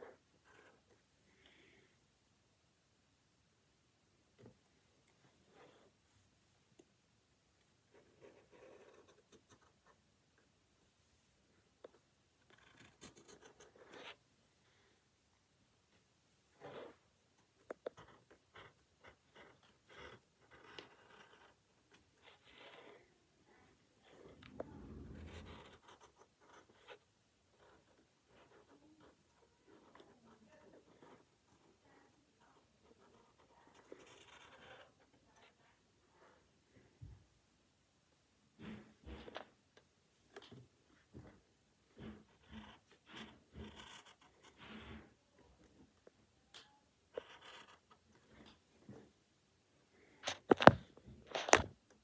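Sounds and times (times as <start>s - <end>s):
pencil scratching on paper: 0.0s - 1.0s, 7.9s - 10.0s, 11.1s - 14.2s, 16.5s - 36.4s, 40.3s - 46.1s, 47.1s - 48.5s.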